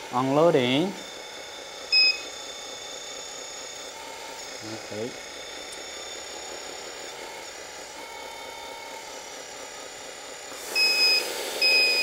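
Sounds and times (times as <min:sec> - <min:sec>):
simulated engine hum with whine: 0:00.0 - 0:12.0
short electronic beeps: 0:01.9 - 0:02.3, 0:10.8 - 0:12.0.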